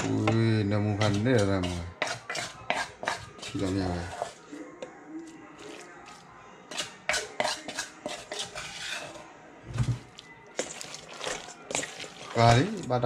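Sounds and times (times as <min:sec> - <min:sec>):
wooden spoon knocking and scraping: 0:00.0 - 0:04.4.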